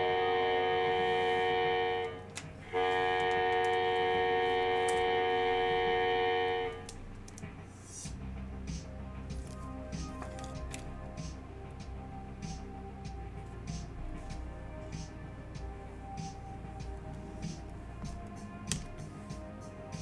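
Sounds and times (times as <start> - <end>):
electronic horn-like tone: 0.0 - 7.0
trading card clicks and rustles: 9.3 - 11.0.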